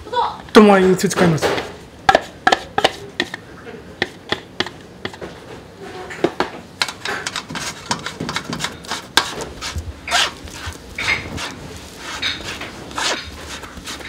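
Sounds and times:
spatula scraping on metal mesh: 7.0 - 14.0.

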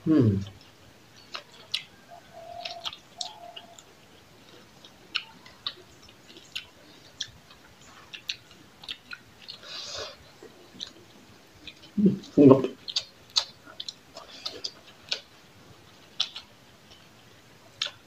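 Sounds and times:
wet chewing and lip-smacking: 0.4 - 18.0.

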